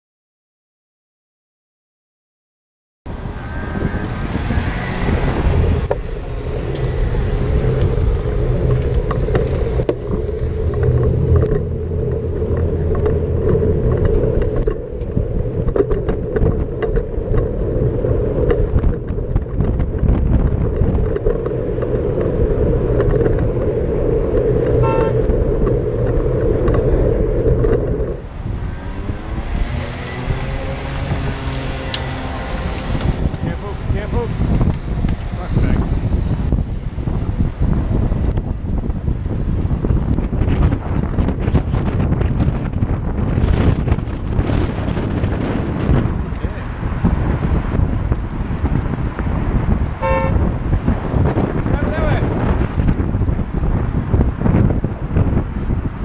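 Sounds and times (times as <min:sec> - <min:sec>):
vehicle engines running: 0:03.1 - 0:56.0
car horn toot: 0:24.8 - 0:25.3, 0:50.0 - 0:50.5.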